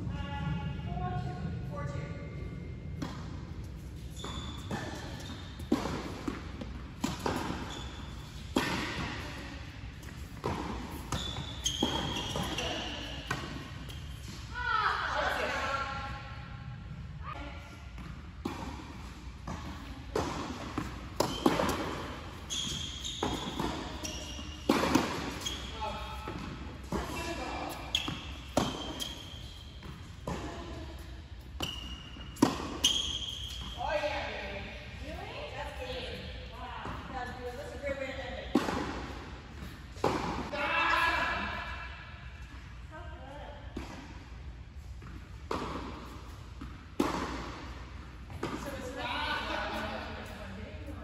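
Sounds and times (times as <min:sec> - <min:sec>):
tennis ball bounces: 0:03.0 - 0:14.4, 0:18.0 - 0:33.7, 0:45.0 - 0:49.0
tennis ball struck by racket: 0:24.6 - 0:25.4, 0:45.1 - 0:48.6.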